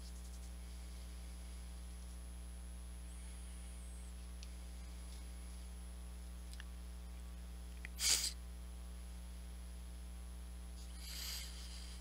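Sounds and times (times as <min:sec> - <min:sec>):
low electrical mains hum: 0:00.0 - 0:12.0
faint clicks: 0:04.3 - 0:05.3, 0:06.4 - 0:06.8.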